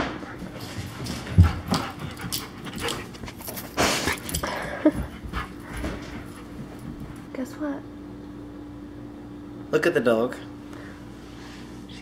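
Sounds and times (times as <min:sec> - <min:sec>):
dog panting: 0:00.0 - 0:07.3.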